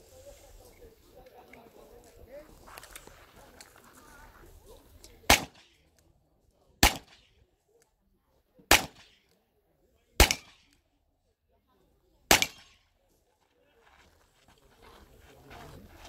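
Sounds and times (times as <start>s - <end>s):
handgun shots with echo: 5.3s - 5.8s, 6.8s - 7.3s, 8.7s - 9.3s, 10.2s - 10.8s, 12.3s - 12.8s.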